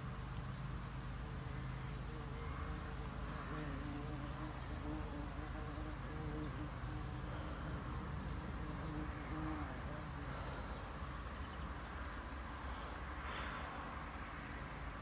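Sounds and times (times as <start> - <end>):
flying insects buzzing: 0.0 - 15.0.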